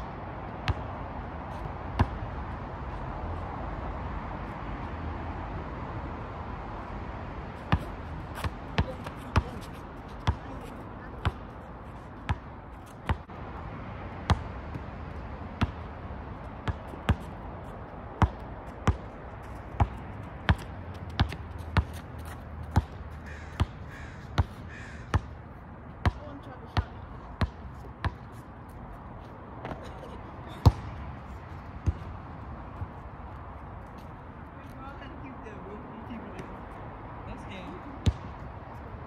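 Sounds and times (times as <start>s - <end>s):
basketball bouncing on asphalt: 0.5s - 3.0s, 7.6s - 13.4s, 14.1s - 34.9s, 37.6s - 38.9s.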